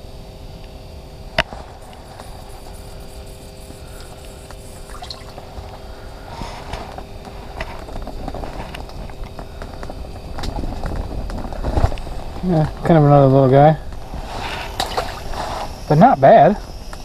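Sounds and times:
steady low hum: 0:00.0 - 0:17.0
water splashing and dripping: 0:04.9 - 0:05.4.

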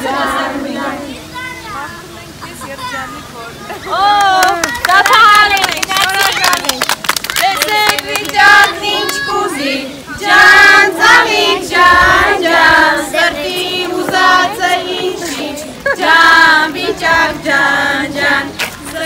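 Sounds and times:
women singing: 0:00.0 - 0:01.2, 0:07.5 - 0:19.0
children singing: 0:00.0 - 0:01.4, 0:08.3 - 0:19.0.

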